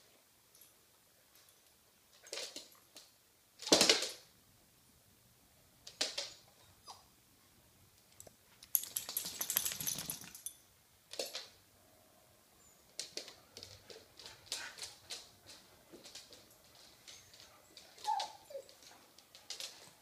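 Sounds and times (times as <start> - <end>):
dog claws clicking on hard floor: 2.1 - 4.2, 5.8 - 6.4, 8.2 - 11.6, 12.9 - 20.0.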